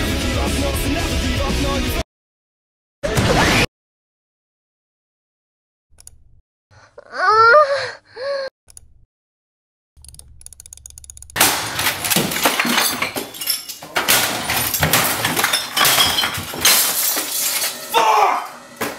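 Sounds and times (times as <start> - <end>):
loud clattering and crashing: 11.4 - 17.9.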